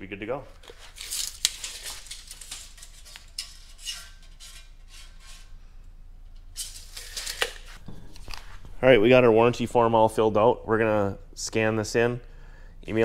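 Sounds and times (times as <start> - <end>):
tape measure clicking and rattling: 0.6 - 5.4, 6.6 - 7.8.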